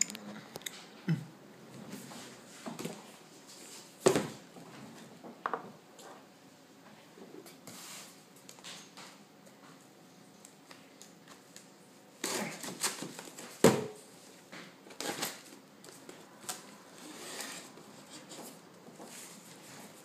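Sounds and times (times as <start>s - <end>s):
packaging rustling and scraping: 14.9s - 15.6s, 16.4s - 20.0s.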